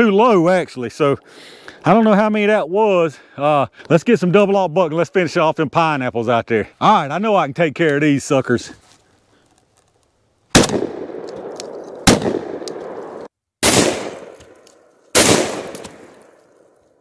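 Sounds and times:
shotgun blasts echoing: 0:10.5 - 0:16.8.

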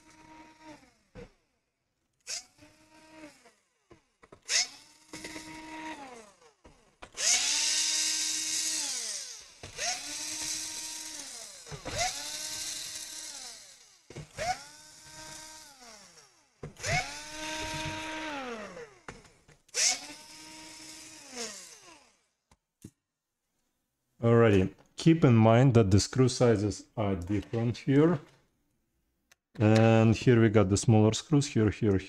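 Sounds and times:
electric screwdriver whining: 0:00.0 - 0:01.6, 0:02.2 - 0:22.3.

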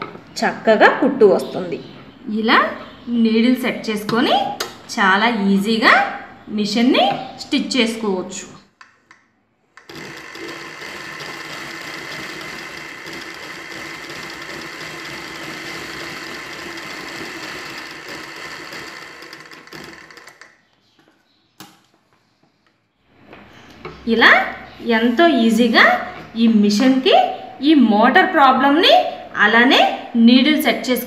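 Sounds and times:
sewing machine running: 0:09.8 - 0:20.5.

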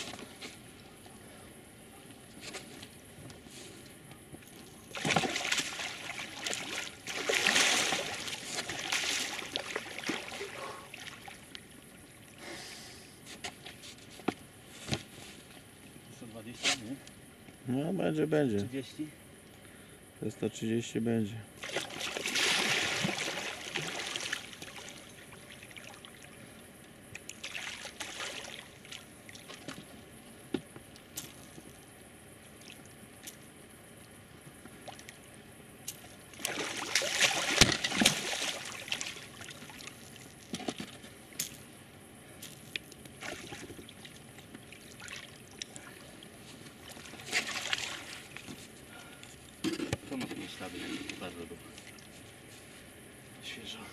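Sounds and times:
water splashing and sloshing: 0:02.2 - 0:12.4, 0:21.6 - 0:41.7, 0:42.4 - 0:52.8.

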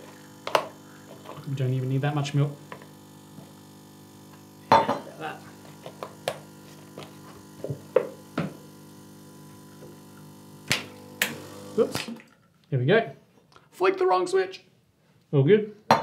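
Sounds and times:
metal jug set down on counter: 0:04.7 - 0:05.1.

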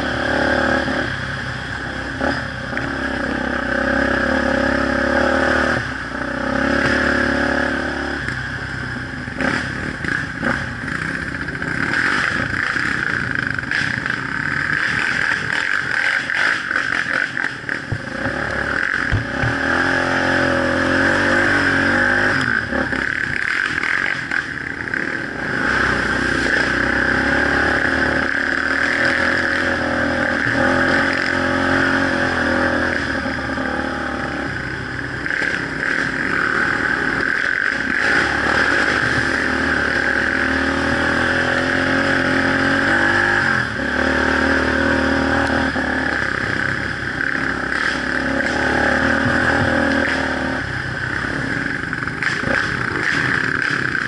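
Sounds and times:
quad engine revving: 0:00.0 - 0:54.0
clatter from bumps: 0:09.5 - 0:19.6, 0:22.4 - 0:25.2, 0:35.2 - 0:40.5, 0:51.9 - 0:54.0.

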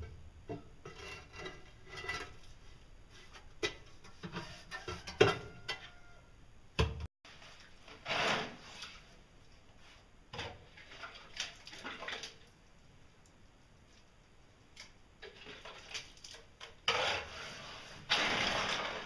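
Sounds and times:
metal tool scraping plastic bucket: 0:00.8 - 0:02.5, 0:07.9 - 0:09.0, 0:16.8 - 0:19.0.

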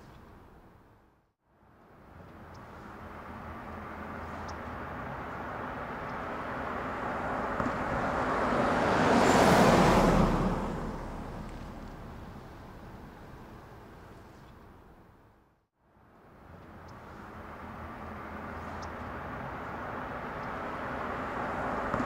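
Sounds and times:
vehicle passing by: 0:02.0 - 0:13.2, 0:16.5 - 0:22.0.

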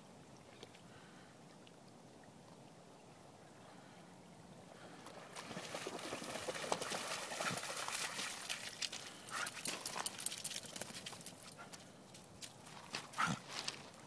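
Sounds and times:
dog splashing through water: 0:05.2 - 0:11.4.

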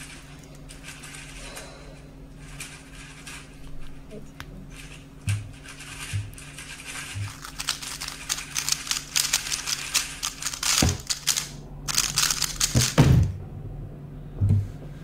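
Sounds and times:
puzzle cube plastic clicking: 0:07.3 - 0:13.0.

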